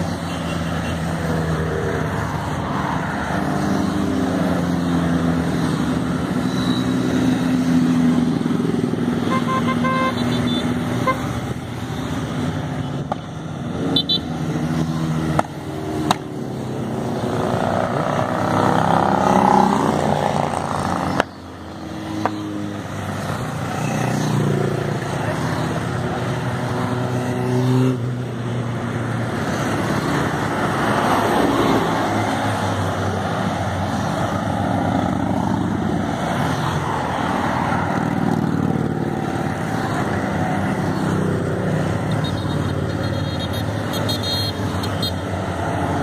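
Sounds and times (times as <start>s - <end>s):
motorcycles riding past: 0.0s - 46.0s
horn toots: 9.2s - 11.4s, 42.1s - 45.2s.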